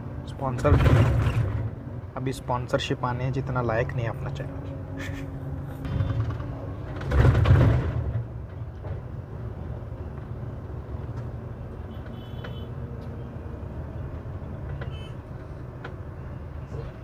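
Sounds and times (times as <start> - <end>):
road noise: 0.0 - 17.0
coach engine rumble: 2.8 - 11.3.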